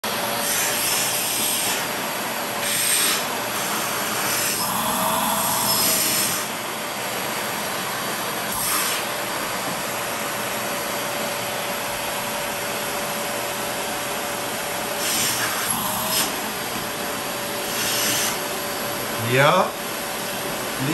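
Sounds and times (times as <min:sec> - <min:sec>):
vacuum cleaner whine: 0:00.0 - 0:20.9
air rushing through hose: 0:08.4 - 0:09.4, 0:14.9 - 0:16.5, 0:17.6 - 0:18.5.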